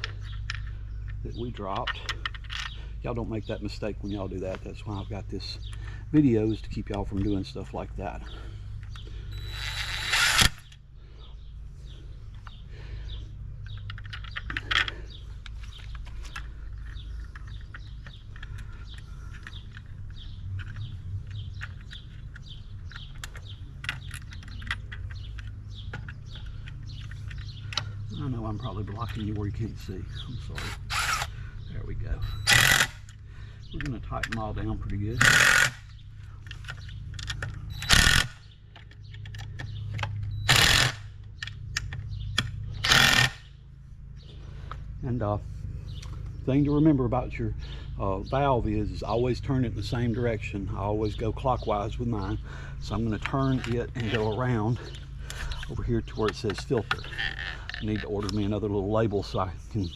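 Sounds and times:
small birds chirping: 0:00.0 - 0:59.9
steady low hum: 0:00.0 - 0:59.9
cordless drill driving screws: 0:09.4 - 0:10.6, 0:30.6 - 0:31.3, 0:32.2 - 0:33.0, 0:35.2 - 0:35.8, 0:37.8 - 0:38.4, 0:40.5 - 0:41.0, 0:42.8 - 0:43.4.

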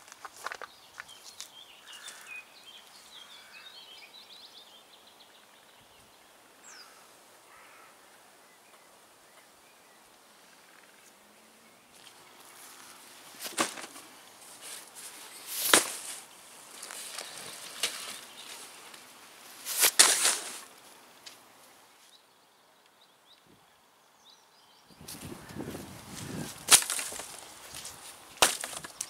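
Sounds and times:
nylon bags rustling: 0:12.0 - 0:21.0, 0:26.1 - 0:29.0.

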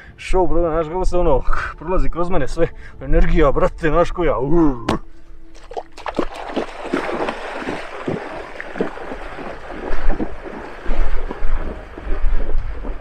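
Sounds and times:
bare feet splashing in water: 0:05.5 - 0:13.0
wind buffeting microphone: 0:06.9 - 0:13.0.

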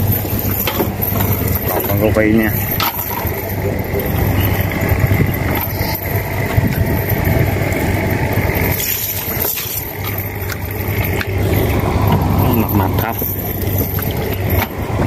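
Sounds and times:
small boat engine running: 0:00.0 - 0:15.0.

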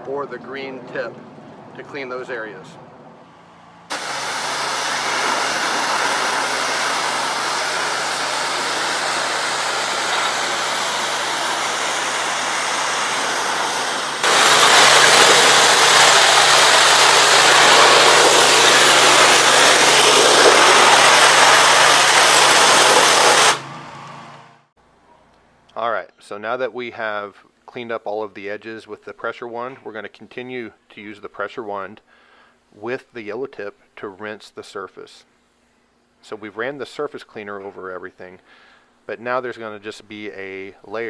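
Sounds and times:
pressure washer engine running: 0:03.3 - 0:24.6
high-pressure water spray hissing: 0:03.9 - 0:23.6.

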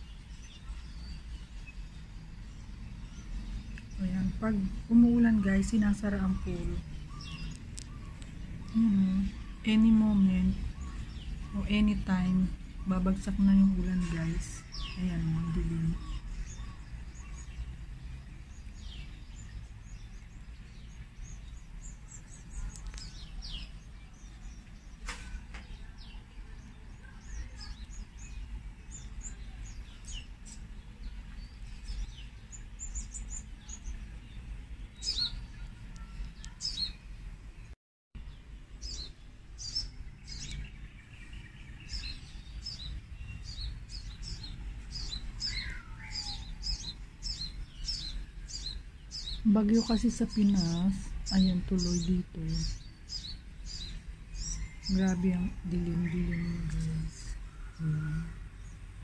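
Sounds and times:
steady low rumble: 0:00.0 - 0:26.8
small birds chirping: 0:00.0 - 0:59.0.

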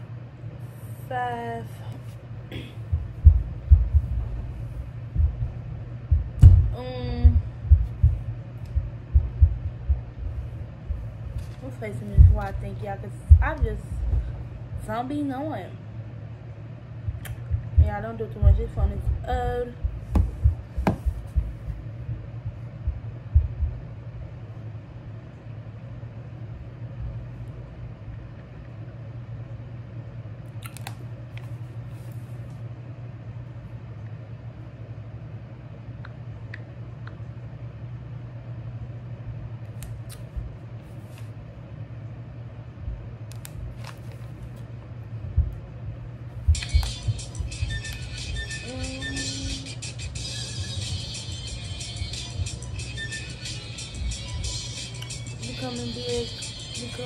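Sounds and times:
low room hum: 0:00.0 - 0:57.0
low handling thumps: 0:02.5 - 0:11.2, 0:12.0 - 0:15.0, 0:17.0 - 0:23.8.

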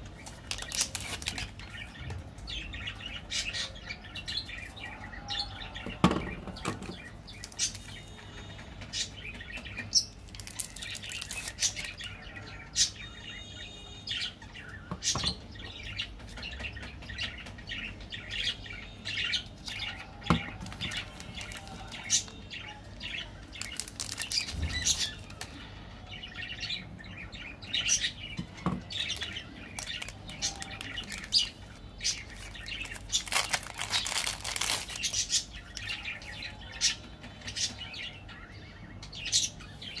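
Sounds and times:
plastic wrappers crinkling and tearing: 0:00.0 - 0:02.0, 0:05.9 - 0:08.0, 0:10.2 - 0:12.4, 0:19.5 - 0:25.6, 0:28.9 - 0:36.2.

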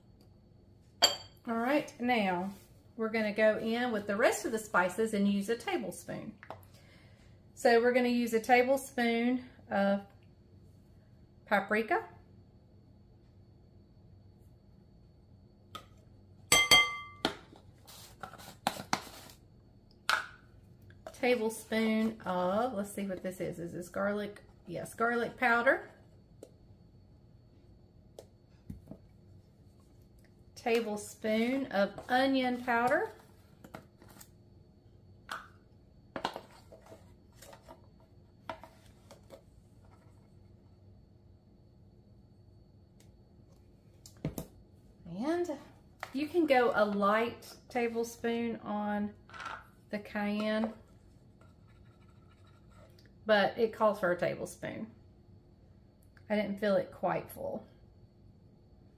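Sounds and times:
metal spoon clinking on glass: 0:16.5 - 0:17.2.

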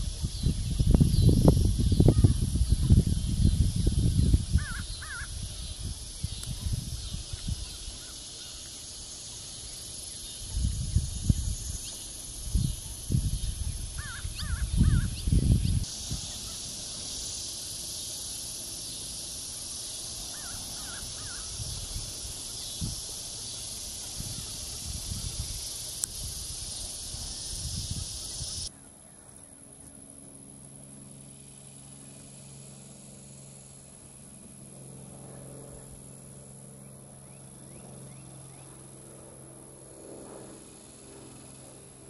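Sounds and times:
wind rumble on microphone: 0:00.0 - 0:08.1, 0:10.2 - 0:16.6, 0:20.8 - 0:28.7
high insect drone: 0:00.0 - 0:42.0
bird calling: 0:04.5 - 0:05.4, 0:13.7 - 0:17.3, 0:20.3 - 0:21.7.

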